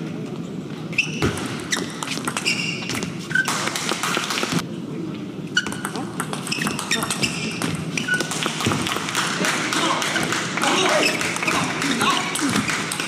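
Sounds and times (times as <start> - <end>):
shoes squeaking on floor: 0.9 - 3.9, 5.5 - 8.8
murmur from hall: 3.0 - 13.0.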